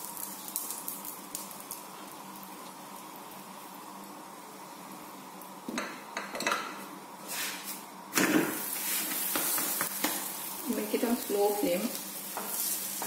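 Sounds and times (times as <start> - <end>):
ghee sizzling: 0.0 - 13.0.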